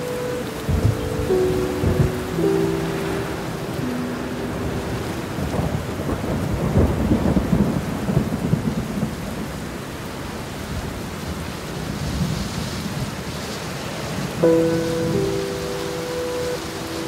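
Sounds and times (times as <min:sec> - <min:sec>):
thunder rumbling and crackling: 0:00.0 - 0:13.3
heavy rain: 0:00.0 - 0:17.0.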